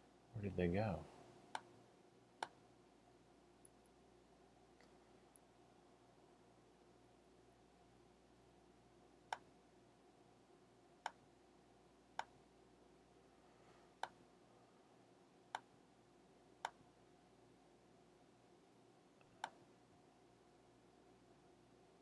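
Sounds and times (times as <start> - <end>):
faint room hum: 0.0 - 22.0
computer mouse clicks: 9.3 - 9.5, 19.2 - 19.6.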